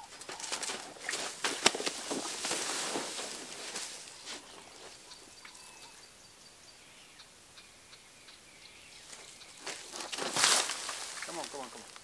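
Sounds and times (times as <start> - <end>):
loud rush of rustling: 0.4 - 4.4, 9.7 - 11.8
faint bird chirps: 3.8 - 10.2.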